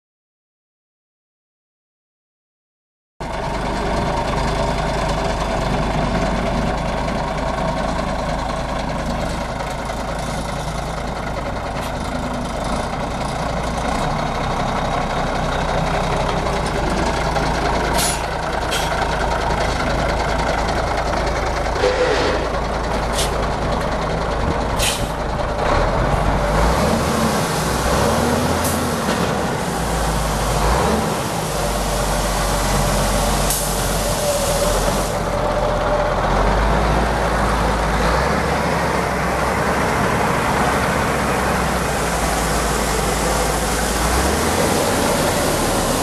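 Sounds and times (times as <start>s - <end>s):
diesel truck engine idling: 3.2s - 46.0s
brief sharp sounds: 21.8s - 22.6s.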